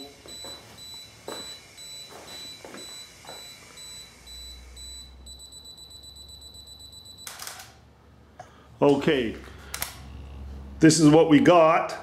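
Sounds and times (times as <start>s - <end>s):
camera self-timer beeping: 0.0s - 7.8s.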